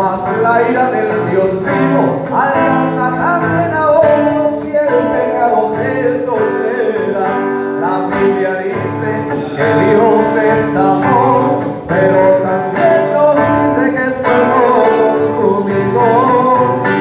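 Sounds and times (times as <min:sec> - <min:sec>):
acoustic guitar strumming: 0:00.0 - 0:17.0
man singing into a microphone: 0:00.0 - 0:17.0.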